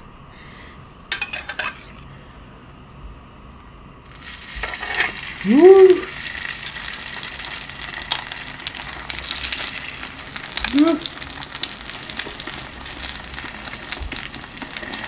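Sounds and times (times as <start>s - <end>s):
bread sizzling on a griddle: 4.0s - 15.0s
person saying ooh: 5.4s - 6.2s, 10.6s - 11.2s.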